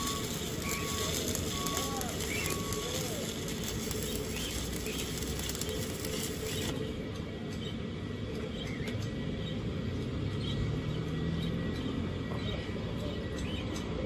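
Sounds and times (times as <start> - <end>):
welding arc crackling: 0.0 - 7.2.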